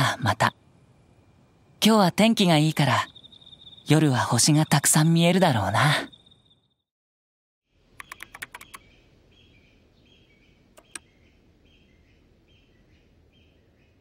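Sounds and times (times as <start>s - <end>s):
faint bird chirps: 2.4s - 6.9s, 7.7s - 14.0s
laptop keyboard typing: 8.0s - 8.8s, 10.8s - 11.0s.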